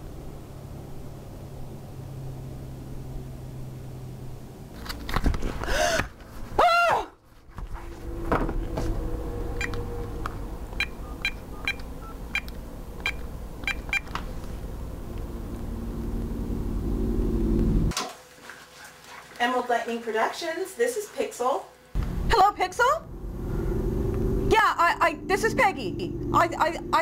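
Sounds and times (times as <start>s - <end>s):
swooping tone: 7.4s - 13.4s, 23.0s - 27.0s
phone keypad beeps: 10.8s - 14.1s.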